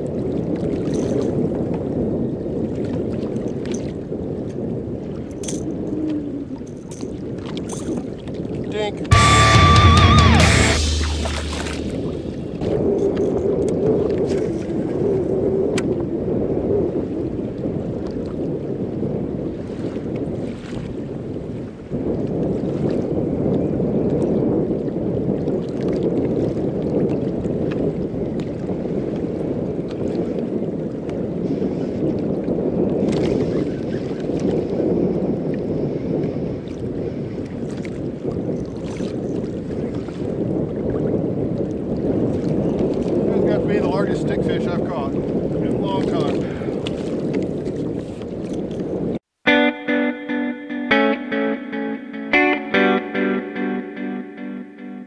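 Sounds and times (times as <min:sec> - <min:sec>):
water lapping at hull: 0:00.0 - 0:09.3, 0:10.8 - 0:49.3
wind rushing over microphone: 0:00.0 - 0:54.6
fishing gear clicks and knocks: 0:05.3 - 0:05.9.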